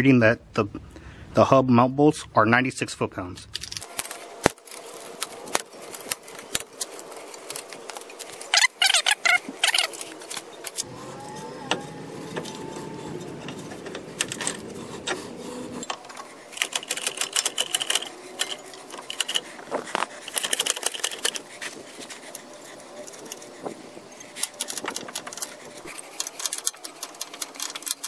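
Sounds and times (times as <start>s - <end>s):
low steady rumble: 4.2s - 20.4s
hand ratchet clicking: 15.8s - 21.4s, 24.2s - 28.0s.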